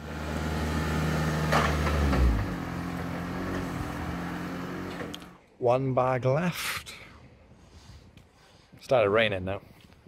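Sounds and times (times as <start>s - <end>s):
vehicle engine revving: 0.0s - 5.4s.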